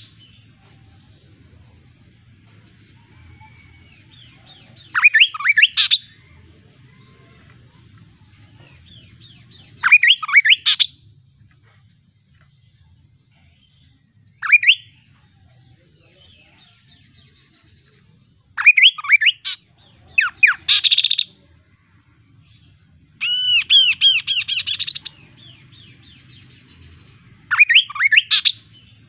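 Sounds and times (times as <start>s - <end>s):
bird singing whistled notes: 3.1s - 6.3s, 8.8s - 11.0s, 13.5s - 18.0s, 18.6s - 21.4s, 22.5s - 29.0s.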